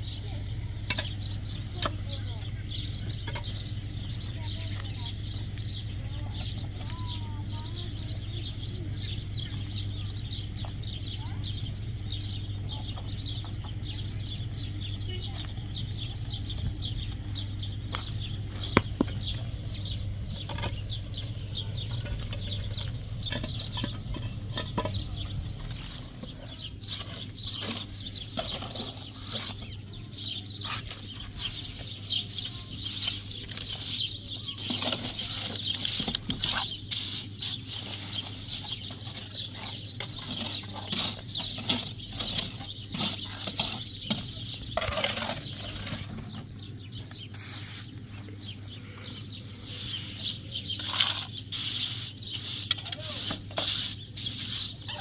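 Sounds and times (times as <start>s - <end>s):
birds chirping: 0.0s - 55.0s
trowel scraping and tapping mortar: 32.4s - 46.4s, 50.7s - 55.0s.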